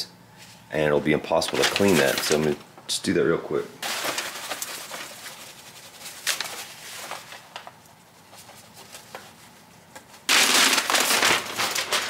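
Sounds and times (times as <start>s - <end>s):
paper rustling on glass: 1.3s - 2.6s, 3.8s - 12.0s.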